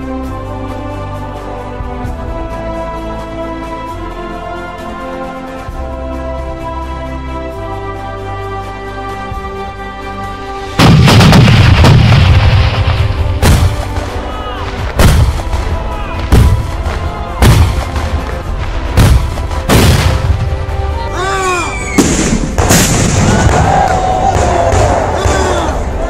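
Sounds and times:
pipe cannons booming: 10.8s - 20.8s, 21.9s - 25.6s.

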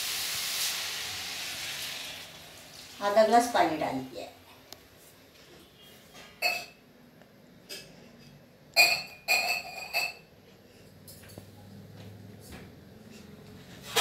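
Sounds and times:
steel dishes clinking: 8.8s - 10.3s.

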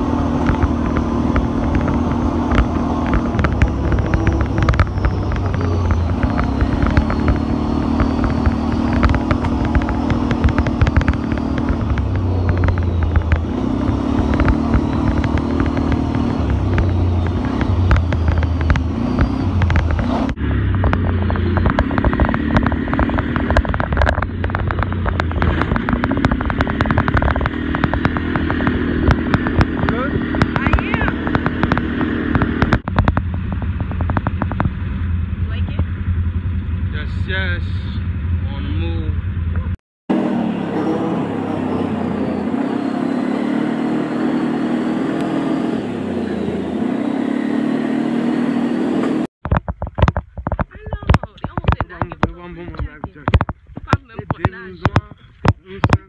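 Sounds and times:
knocks and rattles: 0.0s - 36.0s, 49.3s - 56.0s
atv engine running: 0.0s - 56.0s.

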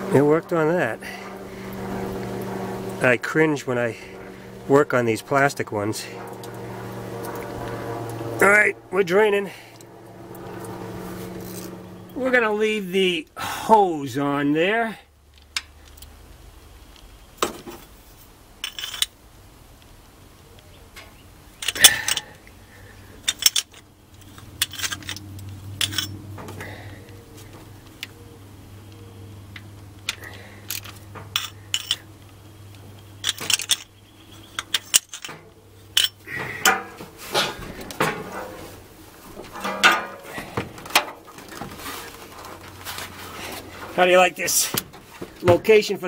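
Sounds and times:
metal hand tools clinking: 18.6s - 19.1s, 21.6s - 22.4s, 23.2s - 26.2s, 30.1s - 32.1s, 33.2s - 37.0s, 39.4s - 41.1s.

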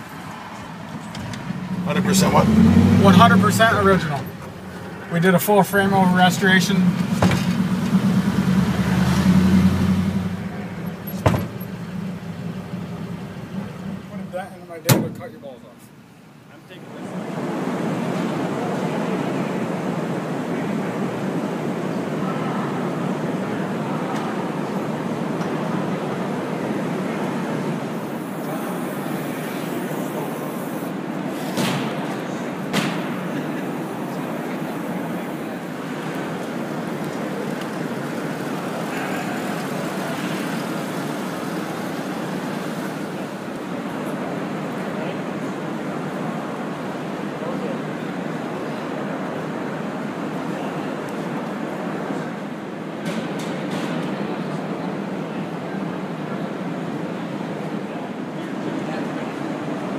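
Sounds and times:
truck engine drone from inside cab: 0.0s - 14.6s, 24.1s - 47.3s
indistinct voices: 0.0s - 15.4s, 20.7s - 48.0s
hall noise: 0.0s - 15.6s, 16.9s - 50.5s
sharp knocks: 11.1s - 11.8s.

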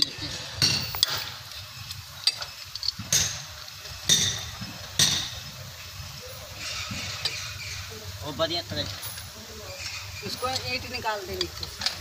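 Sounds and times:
tools scraping and shuffling: 0.0s - 3.5s
metal tools clinking on steel: 0.0s - 5.4s, 8.7s - 12.0s.

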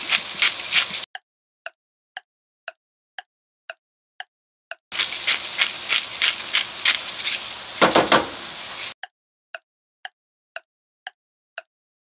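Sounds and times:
food sizzling in a pan: 0.0s - 1.1s, 4.9s - 9.0s
clock ticking: 1.1s - 4.3s, 10.0s - 11.7s.

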